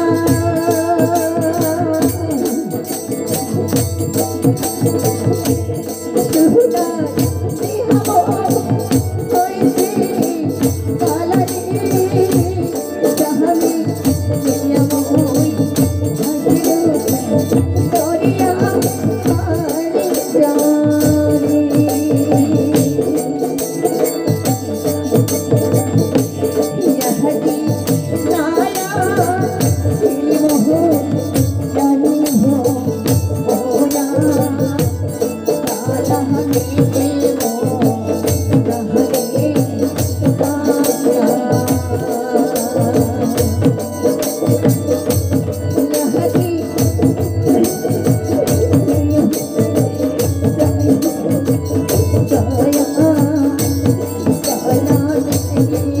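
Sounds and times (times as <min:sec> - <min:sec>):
jingling hand percussion: 0:00.0 - 0:56.0
percussion beat: 0:00.0 - 0:56.0
woman singing: 0:00.0 - 0:56.0.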